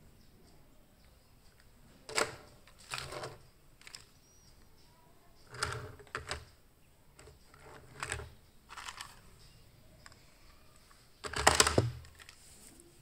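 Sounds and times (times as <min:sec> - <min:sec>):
plastic toy cars clattering: 0:02.1 - 0:04.2, 0:05.5 - 0:06.5, 0:07.2 - 0:09.3, 0:10.8 - 0:12.4.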